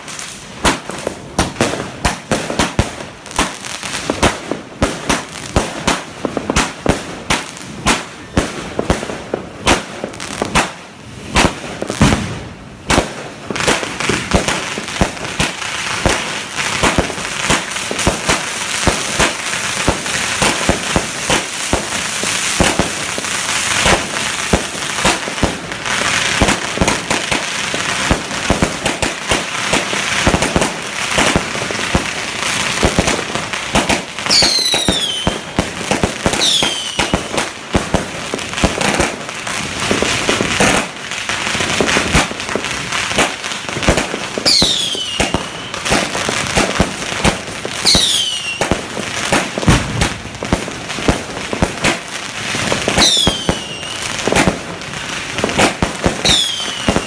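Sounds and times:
fireworks bangs and crackling: 0.0s - 57.0s
falling firework whistles: 33.8s - 37.5s, 43.9s - 50.2s, 52.6s - 54.6s, 55.5s - 57.0s.

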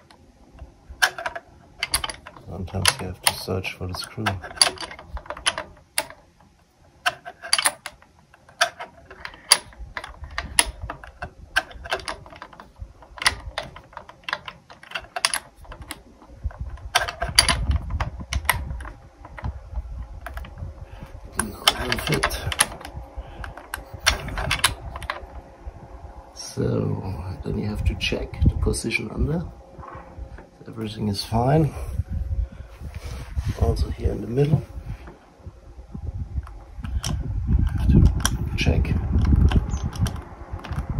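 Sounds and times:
hex key clicking on metal: 1.0s - 6.2s, 7.0s - 19.5s, 21.3s - 25.4s
scraping rustle: 26.5s - 35.6s.

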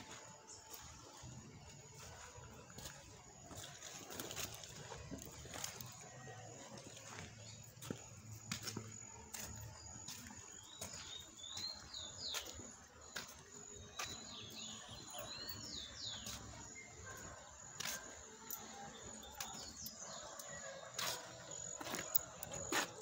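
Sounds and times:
faint outdoor background: 0.0s - 23.0s
small birds chirping: 0.0s - 23.0s.

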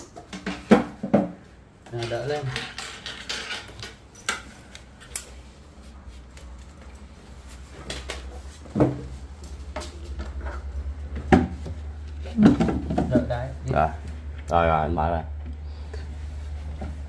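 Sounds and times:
hardware knocking and clicking: 0.0s - 4.5s.

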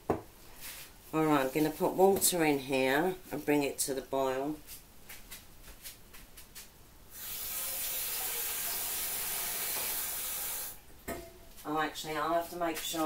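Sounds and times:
tap water running into saucepan: 7.2s - 10.7s.

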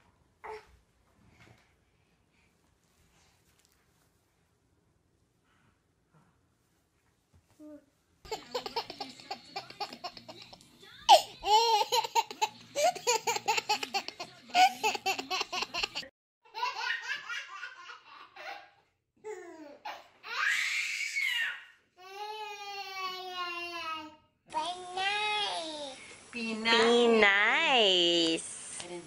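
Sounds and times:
babies laughing: 8.3s - 18.8s.

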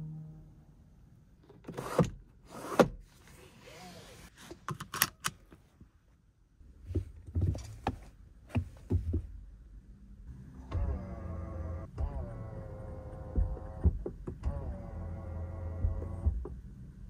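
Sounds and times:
clicks and knocks in car interior: 6.8s - 9.4s, 13.4s - 14.5s.

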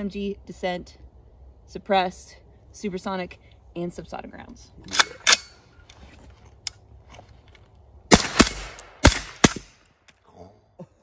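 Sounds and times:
suppressed rifle shots: 8.1s - 9.8s.

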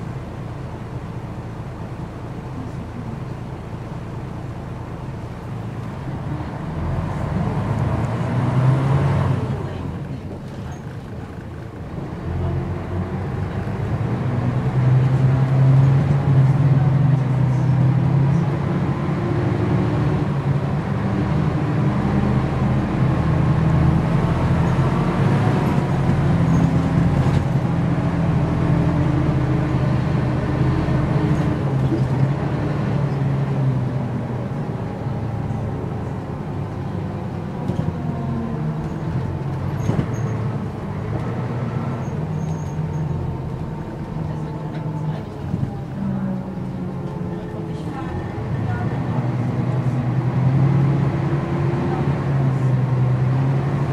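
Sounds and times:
bus diesel engine droning: 0.0s - 53.9s.

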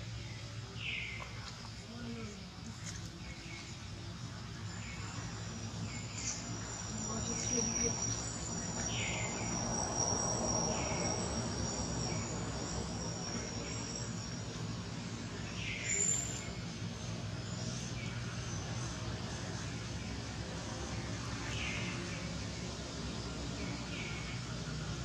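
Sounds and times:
insects trilling: 0.0s - 25.0s.

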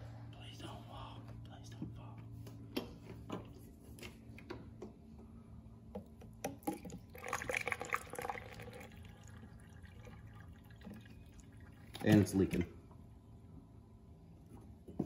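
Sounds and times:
low steady hum: 0.0s - 15.0s
fluid gurgling into funnel: 6.5s - 12.6s.

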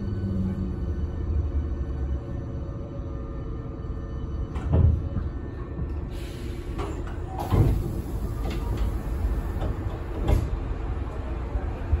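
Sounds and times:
low rumble of train car: 0.0s - 12.0s
train doors sliding open: 4.5s - 5.3s, 5.9s - 11.3s.

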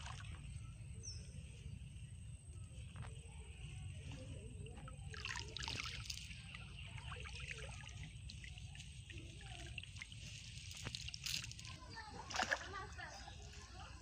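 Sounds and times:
steady low rumble: 0.0s - 12.1s
water trickling and dripping: 4.6s - 13.2s.

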